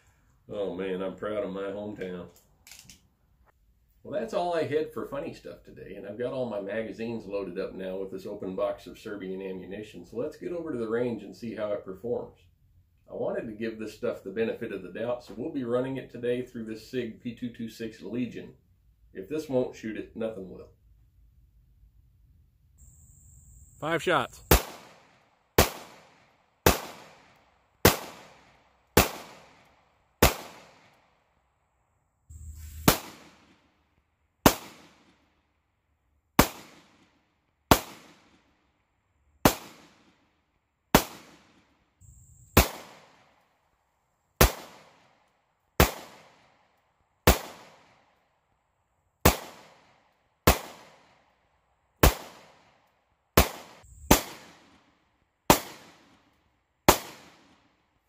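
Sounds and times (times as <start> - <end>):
pistol shots with echo: 24.5 - 29.6, 30.2 - 30.9, 42.6 - 43.2, 44.4 - 45.0, 45.8 - 46.4, 47.3 - 47.9, 49.2 - 49.9, 50.5 - 51.1, 52.0 - 52.6, 53.4 - 54.8, 55.5 - 56.1, 56.9 - 57.6.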